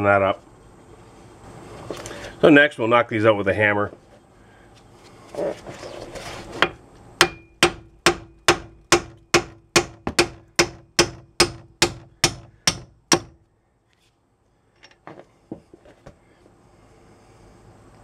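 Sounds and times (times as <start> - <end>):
hammer striking steel bolt: 7.2 - 13.4.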